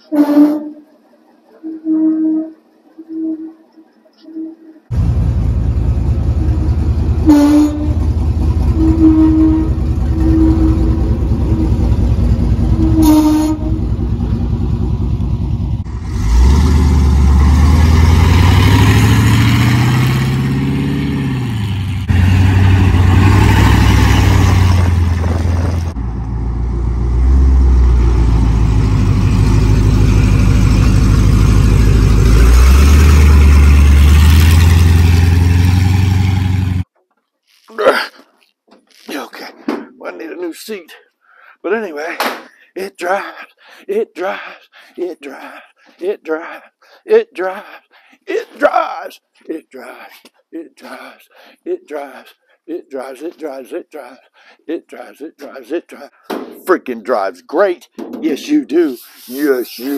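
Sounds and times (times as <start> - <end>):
truck engine idling and revving: 4.9 - 36.9.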